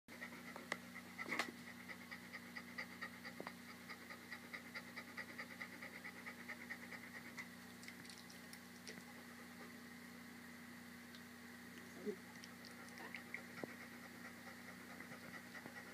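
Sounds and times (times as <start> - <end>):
dog panting rapidly: 0.1 - 7.6, 12.7 - 15.9.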